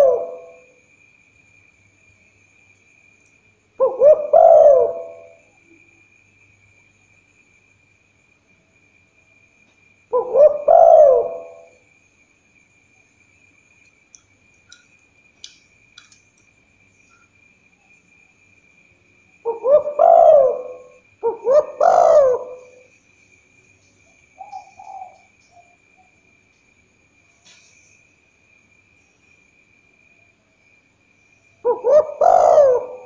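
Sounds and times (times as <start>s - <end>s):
dove cooing: 0.0s - 0.7s, 3.8s - 5.4s, 10.1s - 11.8s, 19.4s - 22.9s, 24.4s - 25.7s, 31.6s - 33.0s.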